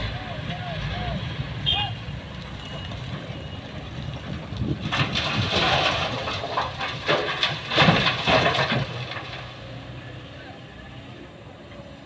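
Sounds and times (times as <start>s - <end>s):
diesel engine running: 0.0s - 12.0s
coal pouring into truck: 4.6s - 9.7s.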